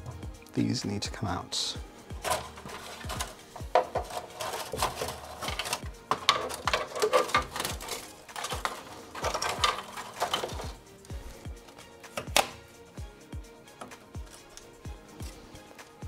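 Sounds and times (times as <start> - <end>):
plastic connectors clicking and rattling: 2.2 - 12.6, 13.8 - 15.3.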